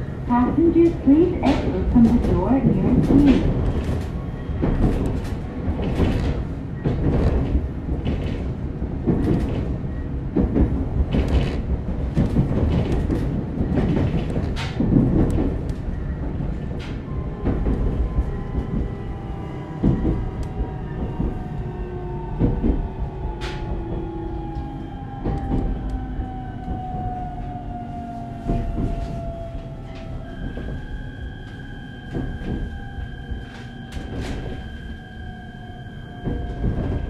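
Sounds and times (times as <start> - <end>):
rail clunks: 0.3 - 21.4.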